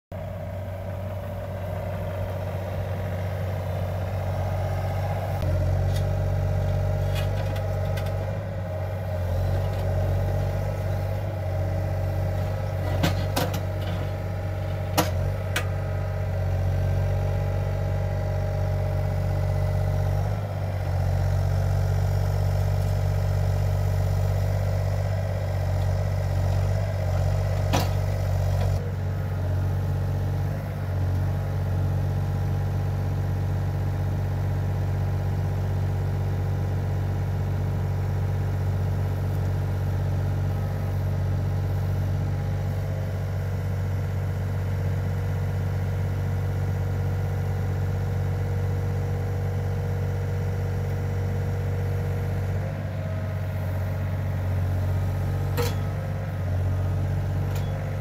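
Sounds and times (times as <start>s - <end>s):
excavator diesel engine running: 0.1s - 58.0s.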